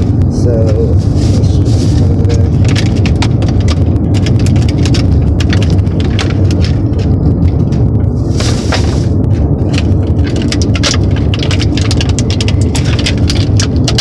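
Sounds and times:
low rumble inside car: 0:00.0 - 0:14.0
plastic packaging crinkling: 0:00.8 - 0:14.0.

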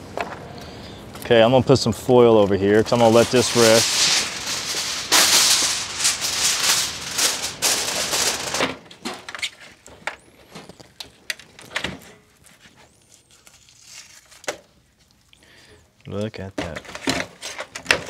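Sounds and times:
aluminium foil crinkling: 0:02.4 - 0:15.4.

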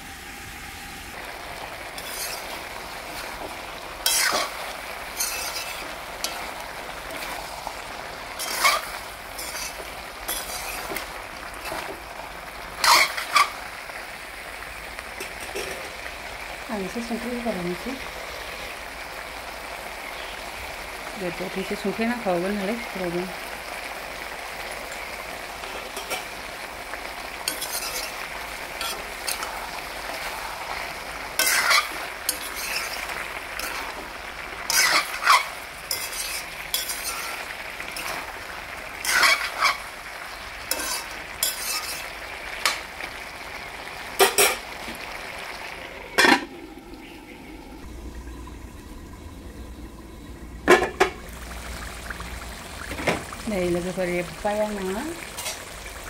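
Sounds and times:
food sizzling in a wok: 0:00.0 - 0:56.0
metal spatula scraping a pan: 0:02.0 - 0:03.4, 0:04.0 - 0:07.6, 0:08.3 - 0:11.9, 0:12.8 - 0:13.6, 0:25.6 - 0:26.3, 0:27.4 - 0:34.0, 0:34.7 - 0:38.3, 0:39.0 - 0:39.9, 0:40.7 - 0:42.2.

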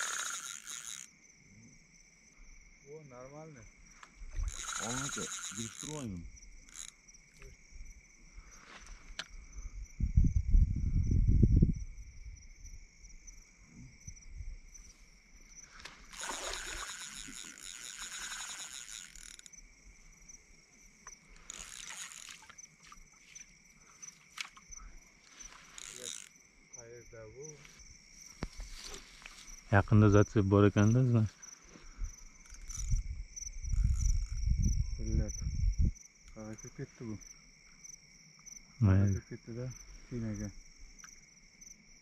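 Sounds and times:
rasping ticking noise: 0:00.0 - 0:01.1, 0:04.4 - 0:07.5, 0:16.2 - 0:19.6, 0:21.0 - 0:22.6, 0:25.5 - 0:26.4, 0:32.4 - 0:34.5
crickets chirping: 0:00.0 - 0:42.0.

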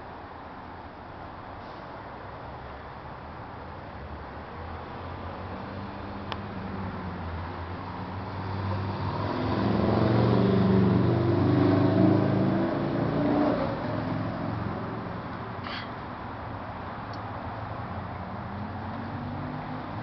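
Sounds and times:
car driving past: 0:08.2 - 0:16.0, 0:18.4 - 0:20.0.

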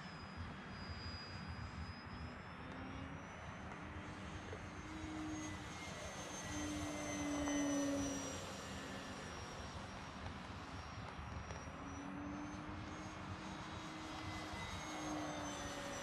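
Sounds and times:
model plane motor whining: 0:00.1 - 0:16.0.

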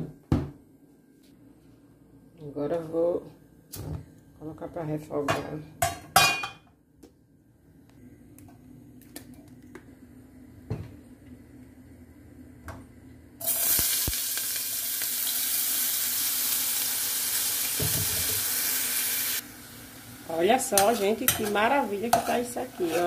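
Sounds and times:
vegetables sizzling in hot oil: 0:13.4 - 0:23.0.

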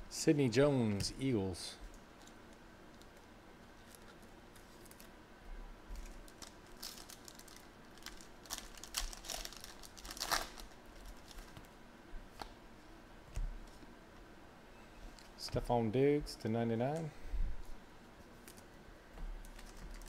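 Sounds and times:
crackles and rips: 0:05.9 - 0:11.7, 0:19.4 - 0:20.0
foil wrapper tearing and crinkling: 0:06.0 - 0:11.5, 0:19.4 - 0:20.0.

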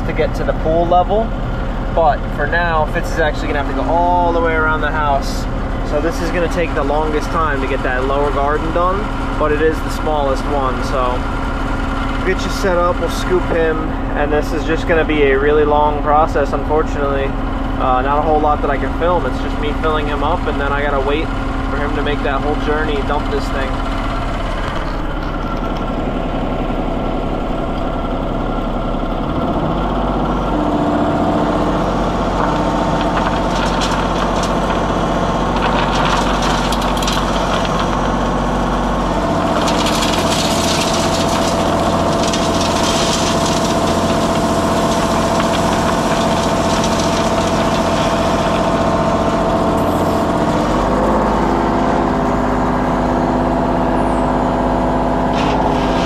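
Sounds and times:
machine engines running: 0:00.0 - 0:56.0
stone scraping and rattling: 0:24.3 - 0:26.2, 0:31.7 - 0:38.4, 0:39.1 - 0:52.1.

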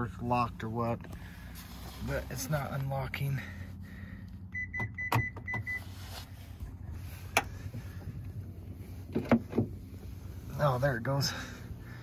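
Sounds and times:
short electronic beeps: 0:04.5 - 0:05.9
car door latch clicking: 0:09.1 - 0:09.8.

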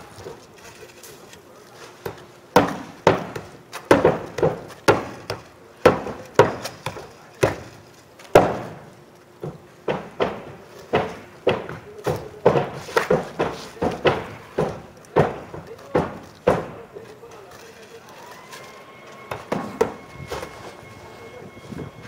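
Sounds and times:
hammer driving nails into shingles: 0:02.1 - 0:07.7, 0:08.3 - 0:08.8, 0:09.4 - 0:16.8.

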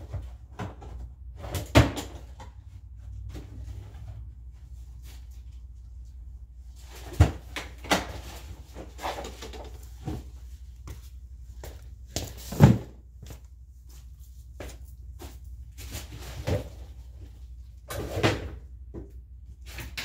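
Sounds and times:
hard objects clunking and knocking: 0:00.0 - 0:04.2.

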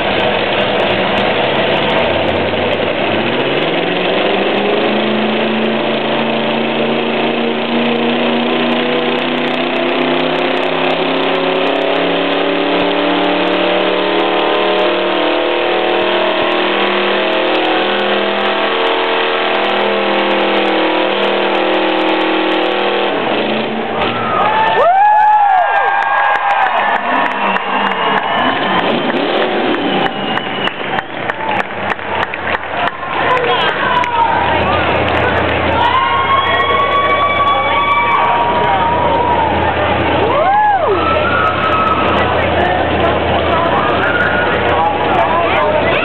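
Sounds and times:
truck engine revving high: 0:00.0 - 0:46.0
people cheering: 0:23.9 - 0:46.0
whistles: 0:27.2 - 0:31.1, 0:40.9 - 0:42.2.

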